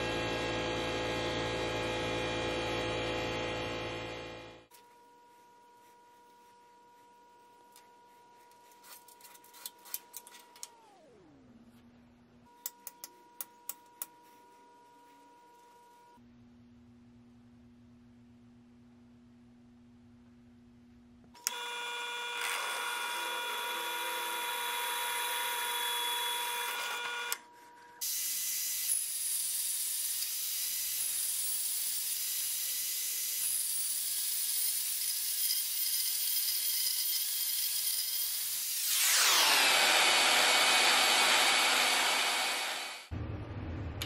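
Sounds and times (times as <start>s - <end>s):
drill press motor whining: 21.4s - 27.4s, 34.7s - 43.1s
band saw cutting metal: 28.0s - 43.1s.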